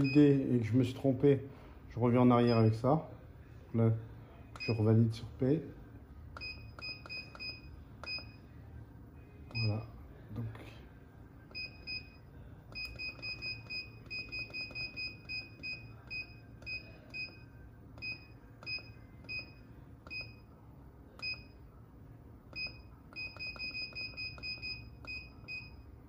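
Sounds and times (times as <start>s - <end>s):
short high key-press beeps: 6.4s - 8.4s, 11.5s - 20.4s, 22.5s - 25.8s.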